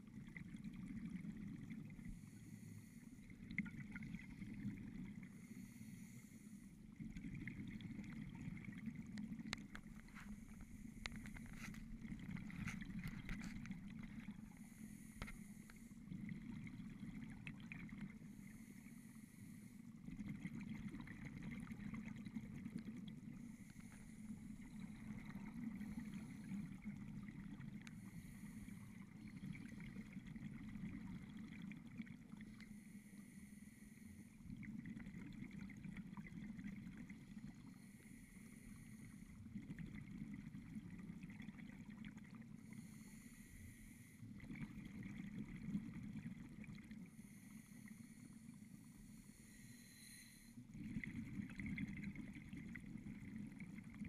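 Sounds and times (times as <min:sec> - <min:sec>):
exhaled bubbles rushing: 0:06.9 - 0:14.6, 0:16.0 - 0:18.3, 0:20.0 - 0:28.0, 0:28.9 - 0:32.6, 0:44.3 - 0:47.1, 0:50.7 - 0:54.0.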